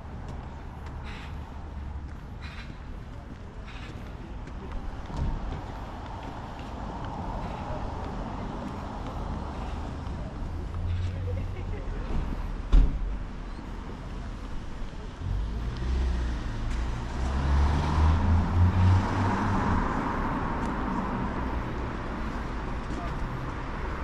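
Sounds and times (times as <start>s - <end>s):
car passing: 15.2s - 24.0s.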